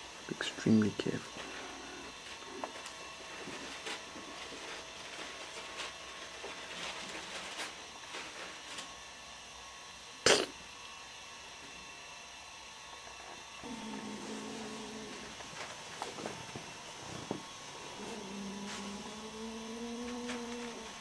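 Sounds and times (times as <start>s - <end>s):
kitten sneeze: 10.2s - 10.6s.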